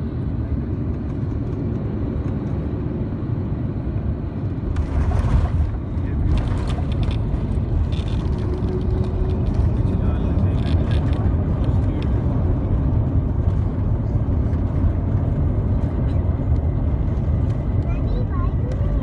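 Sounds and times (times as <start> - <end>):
aircraft cabin engine rumble: 0.0 - 19.0.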